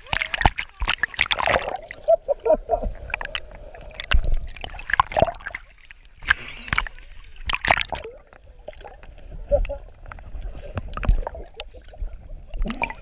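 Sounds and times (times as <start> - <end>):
water gurgling: 0.0 - 13.0
water splashing: 0.0 - 13.0.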